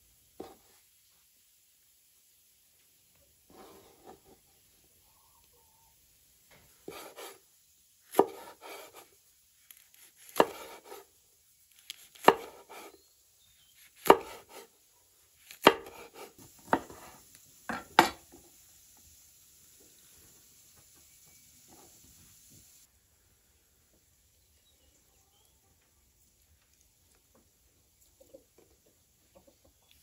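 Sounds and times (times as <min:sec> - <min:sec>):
knife chopping on wooden board: 0:08.1 - 0:09.0, 0:10.0 - 0:11.0, 0:11.9 - 0:12.9, 0:13.9 - 0:14.7, 0:15.5 - 0:17.0.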